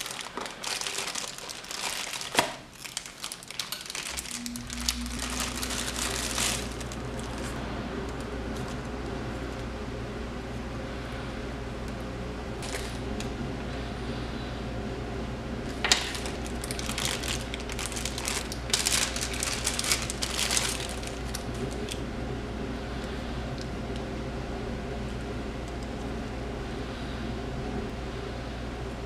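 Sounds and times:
plastic bag crinkling: 0:00.0 - 0:07.6, 0:12.6 - 0:13.3, 0:15.7 - 0:22.0
steady low hum: 0:00.0 - 0:29.0.

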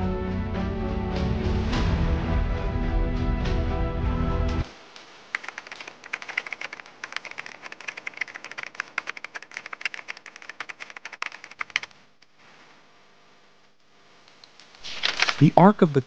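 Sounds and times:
music: 0:00.0 - 0:04.7
typing clicks: 0:05.4 - 0:11.9.

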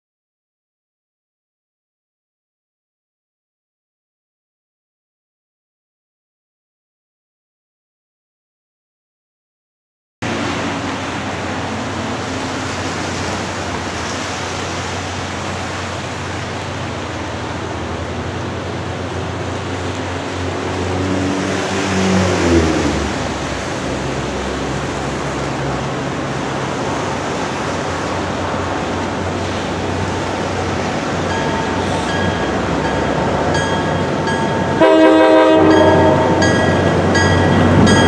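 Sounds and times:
steady rushing noise: 0:10.2 - 0:34.8
diesel locomotive engine drone: 0:10.2 - 0:38.0.

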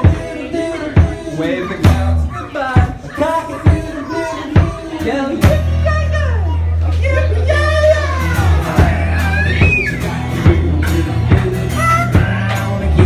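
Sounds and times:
person singing: 0:00.0 - 0:05.8, 0:07.9 - 0:13.0
rock band playing: 0:00.0 - 0:13.0
person yelling: 0:07.1 - 0:10.1.

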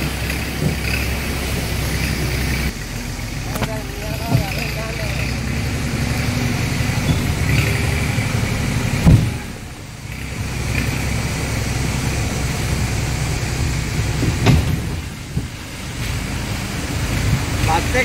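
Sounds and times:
off-road vehicle engine rumbling: 0:00.0 - 0:18.0
sharp thumps: 0:08.8 - 0:09.6.

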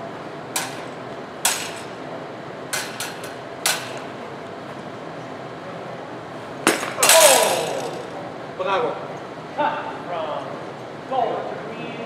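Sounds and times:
steady background noise: 0:00.0 - 0:12.0
blades clashing metallic clinks: 0:06.9 - 0:08.1.

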